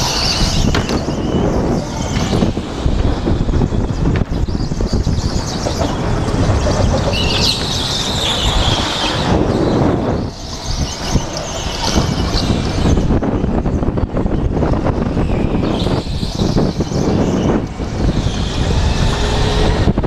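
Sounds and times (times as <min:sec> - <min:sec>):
tyres squealing: 0:00.0 - 0:13.2
go-kart motor and wind rumble: 0:00.0 - 0:20.0.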